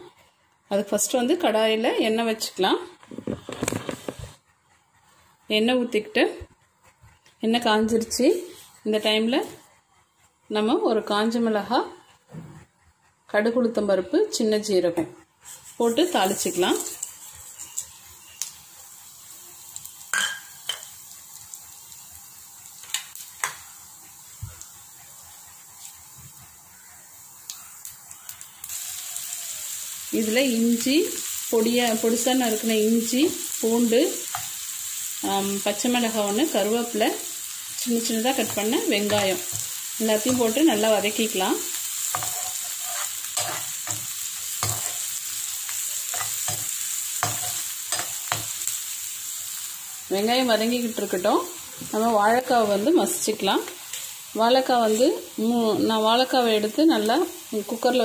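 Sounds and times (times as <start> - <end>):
spatula scraping a pan: 15.4 - 18.2, 35.8 - 48.8
oil sizzling in a frying pan: 15.4 - 58.0.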